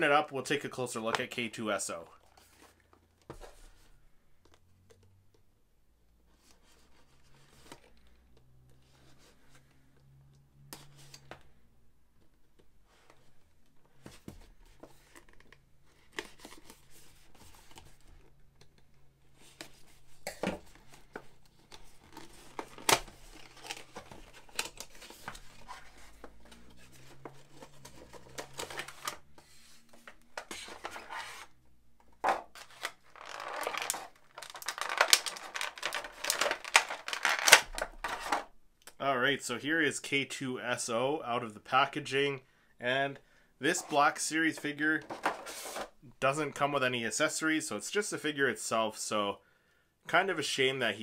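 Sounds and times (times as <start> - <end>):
plastic bag crinkling: 32.6 - 37.9.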